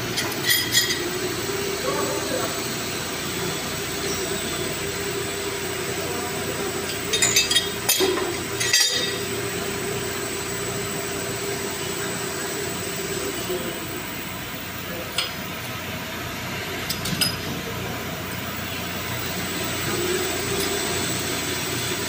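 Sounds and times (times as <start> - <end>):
steady mechanical hum: 0.0 - 22.0
metallic clinks of pipe fittings: 0.2 - 1.1.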